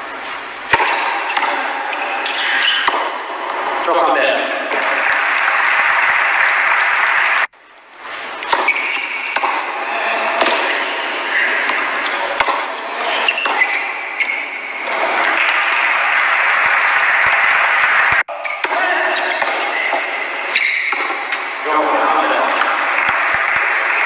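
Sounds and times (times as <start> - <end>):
background noise: 0.0 - 24.0
tennis ball hits: 0.2 - 3.7, 8.4 - 21.5, 22.5 - 24.0.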